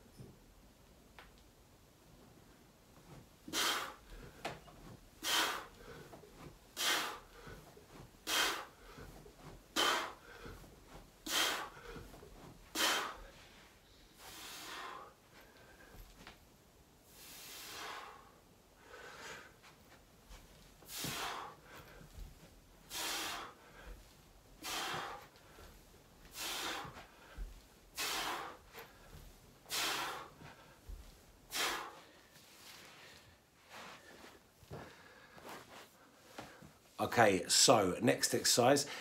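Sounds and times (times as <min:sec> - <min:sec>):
man breathing out hard: 0:09.8 - 0:13.4, 0:14.2 - 0:16.0, 0:20.9 - 0:22.1, 0:22.9 - 0:24.0, 0:24.6 - 0:25.7, 0:26.3 - 0:30.9, 0:31.5 - 0:32.3.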